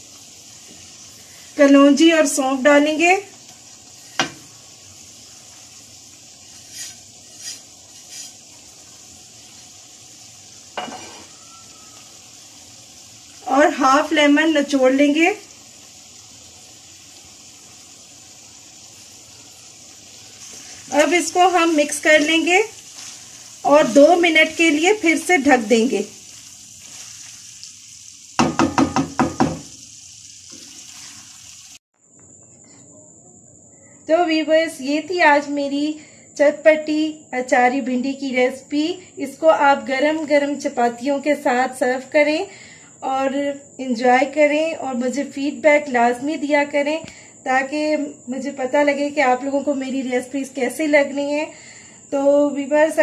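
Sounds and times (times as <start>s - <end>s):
pan hissing: 0.0s - 31.8s
seeds scattering into a pan: 0.0s - 31.8s
wooden spoon knocking on pan: 4.2s - 4.5s, 28.4s - 29.8s.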